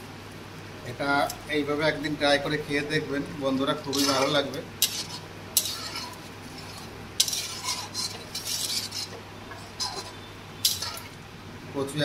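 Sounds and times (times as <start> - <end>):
spatula scraping metal pan: 3.9 - 11.2.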